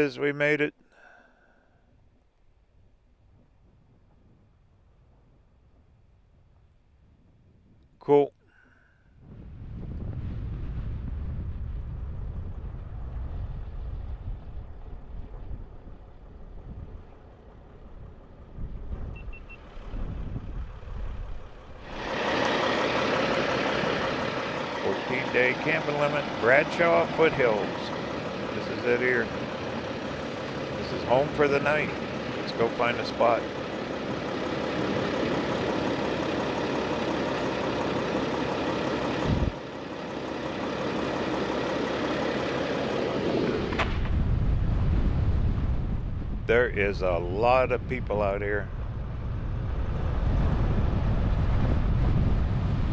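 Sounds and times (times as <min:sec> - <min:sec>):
vehicle driving rumble: 0:09.6 - 0:52.9
short faint beeps: 0:19.1 - 0:19.6.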